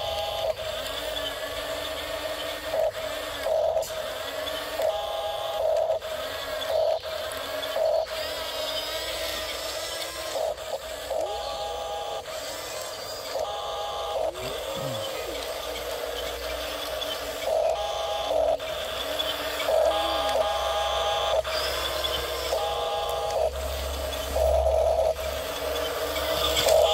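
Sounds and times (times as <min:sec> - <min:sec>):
toy bulldozer motors whining: 0:00.0 - 0:26.9.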